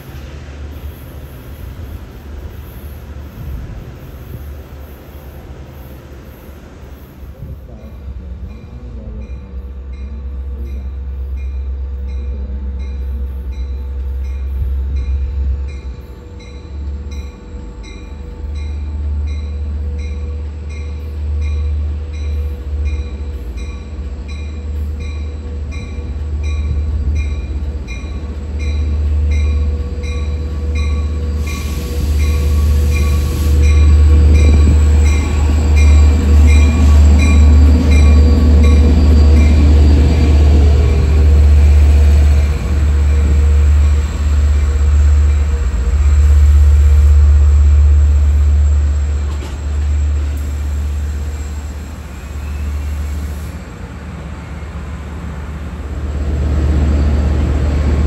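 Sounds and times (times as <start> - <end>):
diesel locomotive rumble: 0.0 - 58.0
train bell ringing: 7.4 - 52.8
wheel or brake squeal: 48.7 - 53.4.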